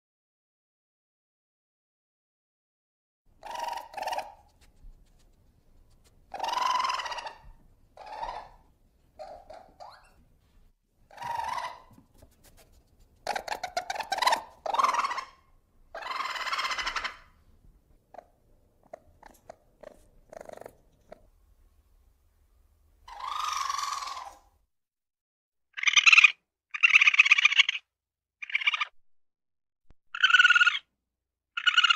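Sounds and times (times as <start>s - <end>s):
ferret calling: 3.4s - 4.4s, 6.3s - 8.6s, 11.1s - 11.9s, 13.2s - 17.3s, 23.1s - 24.4s, 25.7s - 28.9s, 30.1s - 30.9s, 31.5s - 31.9s
ferret clucking: 3.4s - 4.6s, 6.3s - 10.2s, 11.1s - 12.1s, 13.2s - 17.3s, 18.1s - 21.3s, 23.1s - 24.4s, 25.8s - 27.8s, 28.4s - 28.9s, 30.1s - 30.9s, 31.6s - 31.9s.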